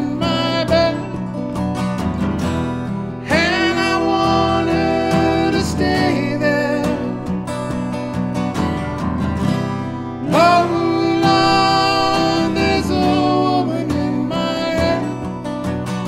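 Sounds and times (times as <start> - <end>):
man singing: 0.0 - 1.4, 3.2 - 7.6, 10.2 - 15.4
acoustic guitars strumming: 0.0 - 16.0.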